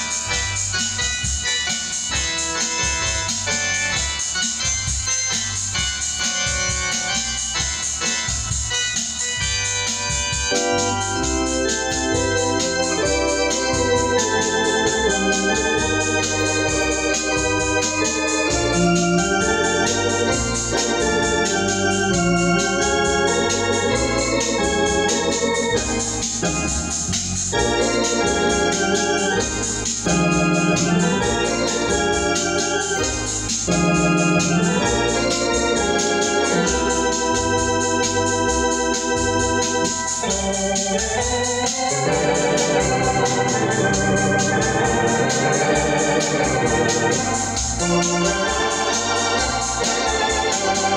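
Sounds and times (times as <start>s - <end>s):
organ playing chords and melody: 0.0s - 50.9s.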